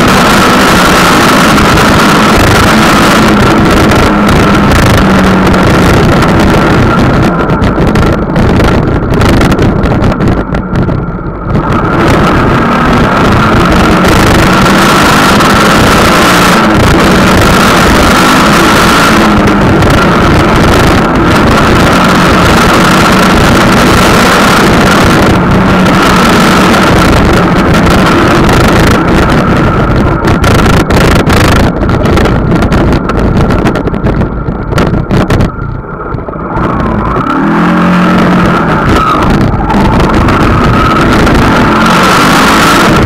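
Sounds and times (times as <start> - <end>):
engine drone with high whine: 0.0 - 43.0
wind buffeting microphone: 0.0 - 43.0.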